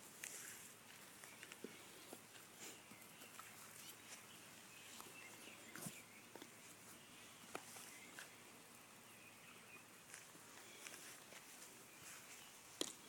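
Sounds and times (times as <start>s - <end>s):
footsteps rustling in straw: 0.1s - 6.1s, 10.0s - 12.8s.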